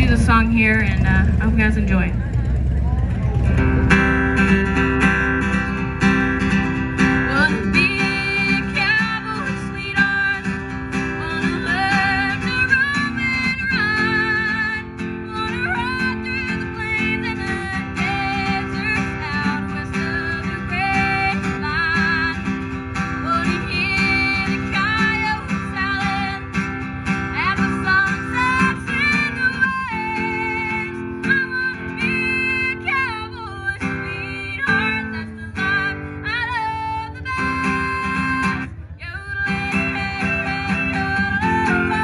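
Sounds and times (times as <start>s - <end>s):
strummed acoustic guitar: 3.1s - 42.0s
girl singing: 7.3s - 10.5s, 11.2s - 22.4s, 23.2s - 26.5s, 27.3s - 42.0s.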